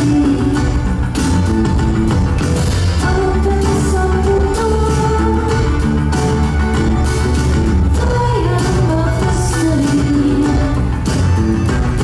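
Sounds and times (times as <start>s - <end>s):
woman singing into a microphone: 0.0s - 1.2s, 3.0s - 5.9s, 7.9s - 11.0s
live band music: 0.0s - 12.0s.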